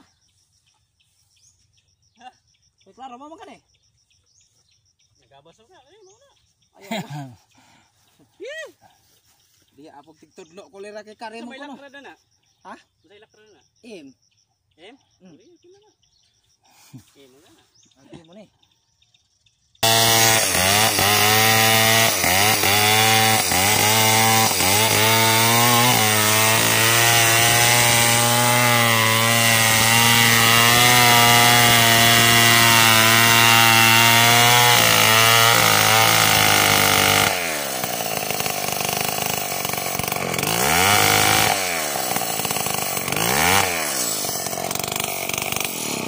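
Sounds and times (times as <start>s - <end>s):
chainsaw cutting wood: 19.8s - 46.0s.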